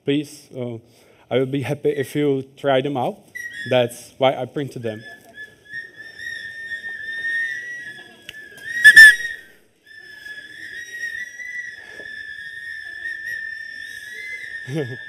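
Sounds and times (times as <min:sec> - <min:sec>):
shrill whistles blowing: 0:03.2 - 0:04.2, 0:04.8 - 0:15.0
loud whistle blast: 0:05.8 - 0:15.0.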